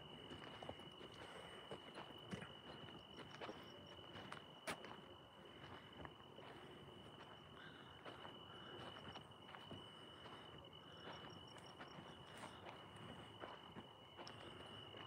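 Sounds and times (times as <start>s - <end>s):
high-pitched insect trill: 0.0s - 15.0s
soft footsteps: 0.1s - 7.4s.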